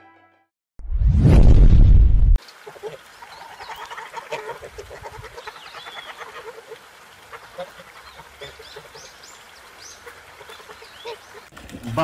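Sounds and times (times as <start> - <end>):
ducks quacking: 2.5 - 12.0.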